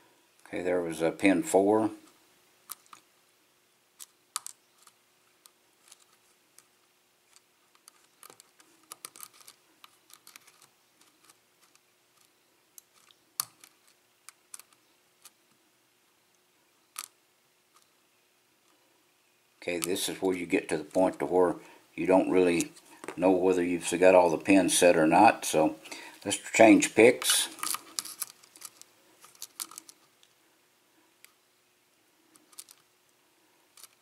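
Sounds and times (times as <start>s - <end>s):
faint steady hum: 0.0s - 34.0s
lock pick ticking and scraping: 7.3s - 15.4s, 27.2s - 30.1s, 32.2s - 32.9s.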